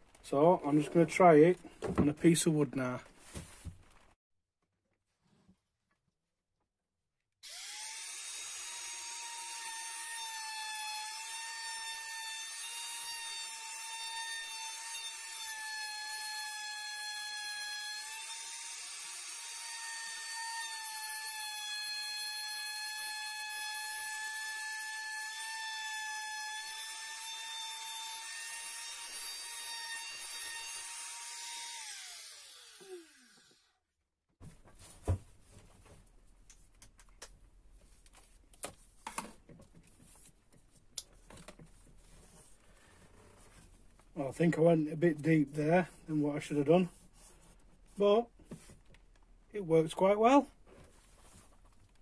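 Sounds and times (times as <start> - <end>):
router whining cutting wood: 7.4 - 33.7.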